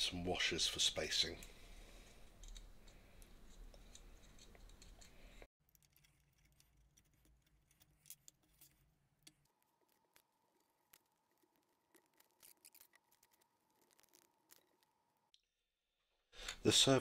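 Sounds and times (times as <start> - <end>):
clicks of small plastic parts: 2.2 - 10.3.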